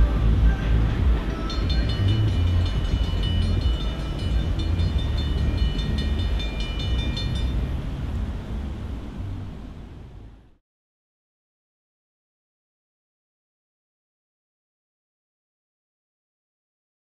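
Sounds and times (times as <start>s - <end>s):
low rumble of passing train: 0.0s - 10.6s
crossing bells ringing rapidly: 1.3s - 7.8s.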